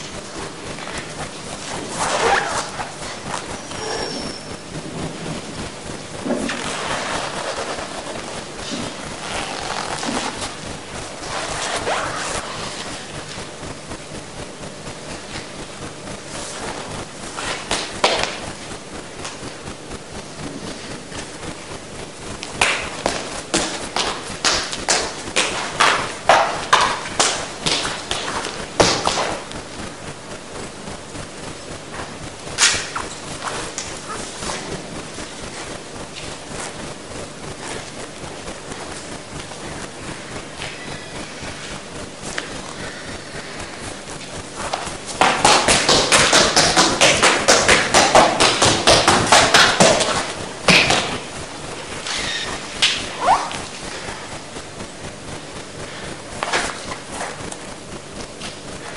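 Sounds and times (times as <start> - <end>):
footsteps running on stage floor: 22.4 - 29.9, 44.2 - 58.8.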